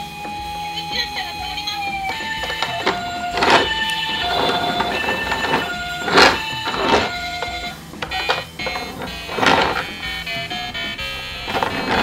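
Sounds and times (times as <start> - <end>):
electronic beeping tunes: 0.0 - 12.0.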